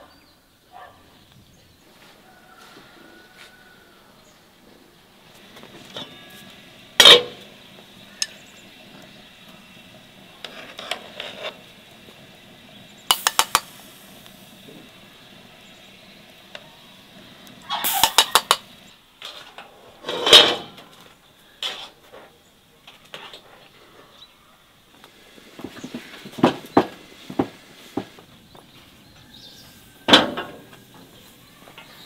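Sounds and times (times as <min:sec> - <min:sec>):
pots and utensils clinking: 0:05.5 - 0:08.5, 0:10.4 - 0:11.7, 0:13.0 - 0:13.9, 0:17.6 - 0:20.9.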